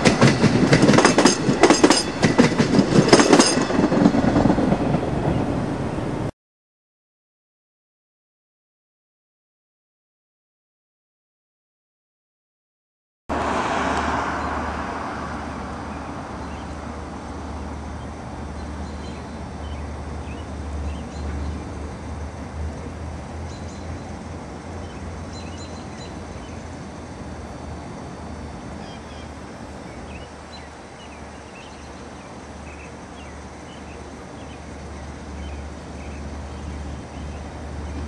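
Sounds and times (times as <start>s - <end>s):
rush of noise: 13.3s - 18.5s
steady low hum: 14.4s - 38.0s
bird chirps: 24.8s - 26.6s.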